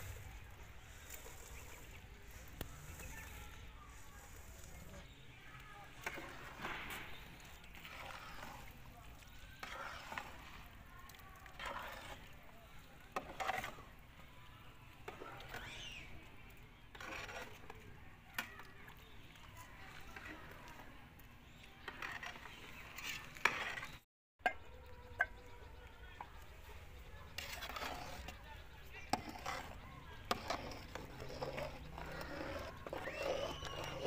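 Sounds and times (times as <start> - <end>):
spoon stirring thick pudding: 0.0 - 34.0.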